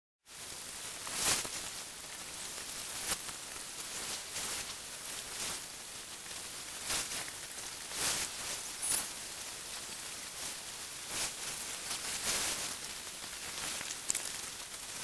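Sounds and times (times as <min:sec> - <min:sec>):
steady hiss: 0:00.3 - 0:15.0
sharp clicks and crackles: 0:13.5 - 0:14.8.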